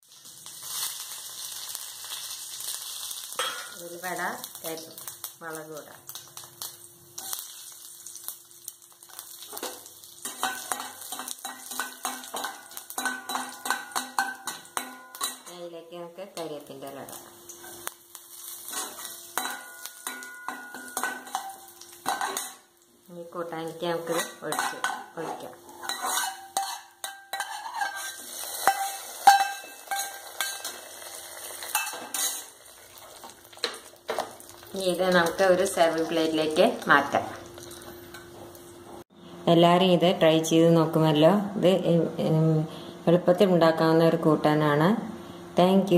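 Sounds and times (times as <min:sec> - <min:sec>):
spices sizzling in hot oil: 0:00.0 - 0:39.1
metal spoon clinking on pan: 0:03.4 - 0:03.8, 0:09.5 - 0:15.6, 0:18.7 - 0:22.6, 0:24.0 - 0:32.5
ladle scraping a metal pot: 0:24.0 - 0:30.8.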